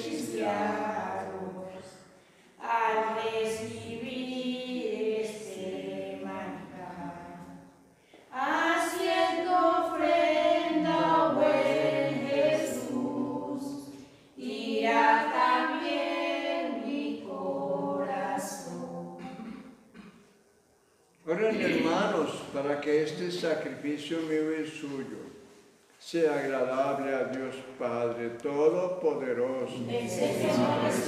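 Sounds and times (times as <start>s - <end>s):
group singing a hymn: 0.0s - 20.1s, 21.4s - 22.5s, 29.1s - 31.0s.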